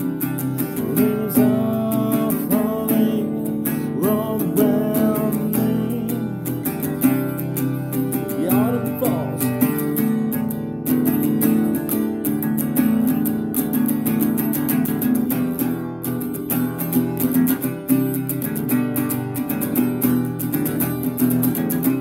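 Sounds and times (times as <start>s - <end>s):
acoustic guitar strumming: 0.0s - 22.0s.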